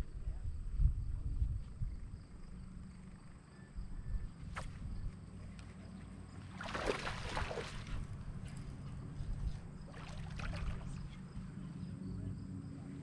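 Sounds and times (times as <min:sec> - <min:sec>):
water lapping against boat hull: 0:06.4 - 0:08.5, 0:09.8 - 0:11.3
fish splashing at water surface: 0:06.5 - 0:08.0, 0:09.9 - 0:11.0.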